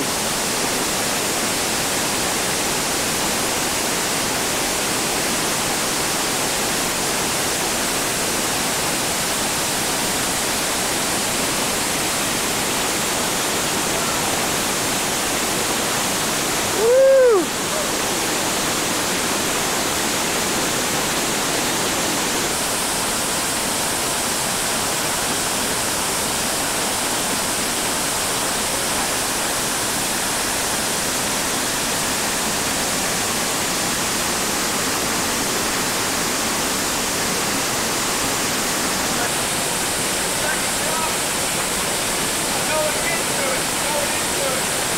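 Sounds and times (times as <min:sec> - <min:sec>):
whitewater roaring: 0:00.0 - 0:44.9
person whooping: 0:16.7 - 0:17.9.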